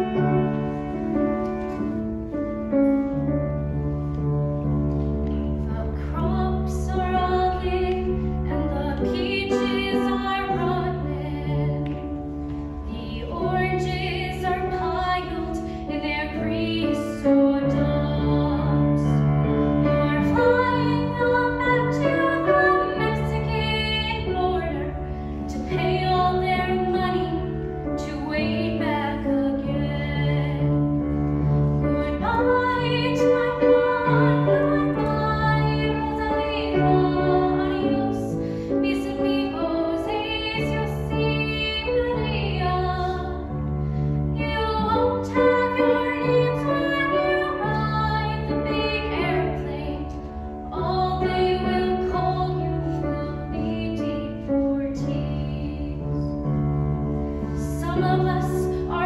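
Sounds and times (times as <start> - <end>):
piano chords: 0.0 - 59.0
girl singing a ballad: 5.4 - 56.6, 57.4 - 59.0.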